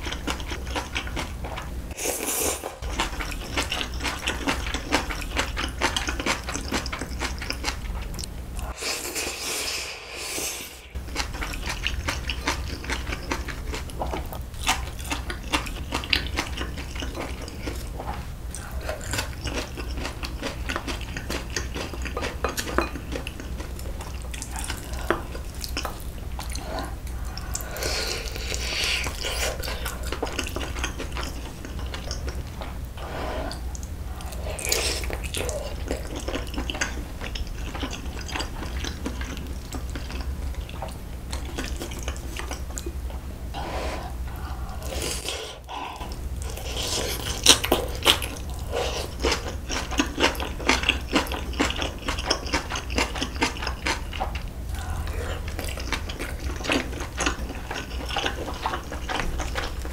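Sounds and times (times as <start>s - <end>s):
wet chewing: 2.6s - 8.8s, 10.9s - 43.0s, 43.7s - 59.9s
low hum: 22.8s - 41.5s.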